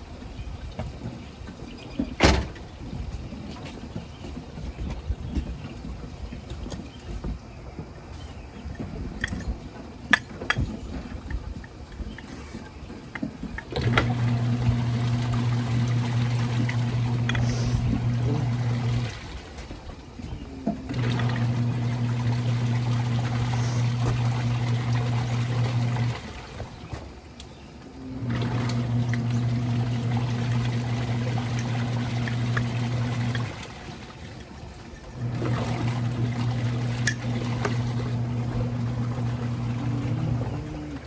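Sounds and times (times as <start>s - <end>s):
water sloshing in tub: 0.2s - 41.0s
washing machine motor humming: 13.0s - 41.0s.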